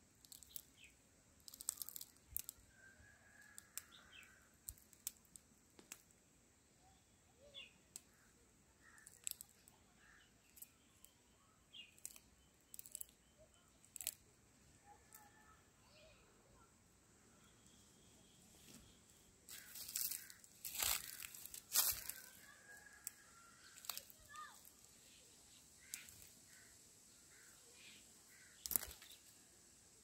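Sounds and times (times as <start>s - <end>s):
cherries plucked from branch: 0.2s - 2.6s, 8.8s - 11.1s, 11.8s - 13.2s, 13.9s - 14.3s, 19.5s - 24.9s, 25.8s - 26.7s, 28.3s - 29.3s
faint bird chirps: 0.2s - 4.8s, 6.6s - 30.0s.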